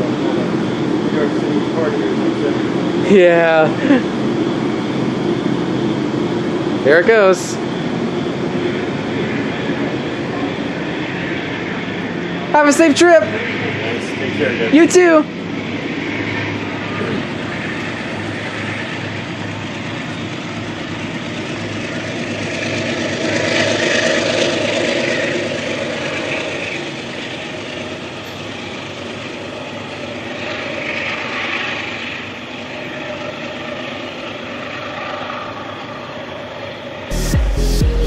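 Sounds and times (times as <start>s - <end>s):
diesel locomotive running: 0.0s - 38.0s
train wheels rolling on rails: 17.0s - 36.8s.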